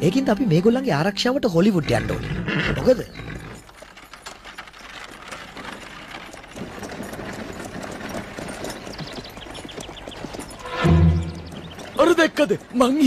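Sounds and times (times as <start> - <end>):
horse hoofbeats: 0.0 - 13.0
wagon rattling clatter: 0.0 - 13.0.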